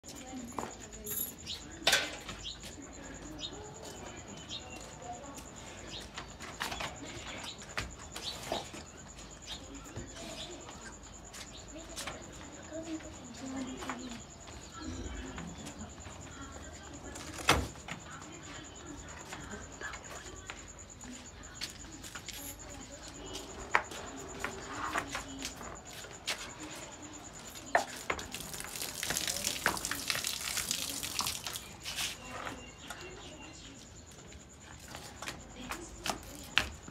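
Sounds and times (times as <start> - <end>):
birds chirping: 0.2 - 17.2, 17.8 - 34.5
cow urinating on brick floor: 27.4 - 32.2.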